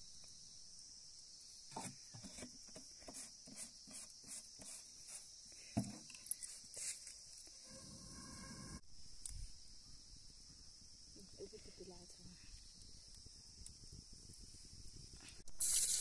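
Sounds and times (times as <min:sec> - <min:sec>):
high insect drone: 0:00.0 - 0:16.0.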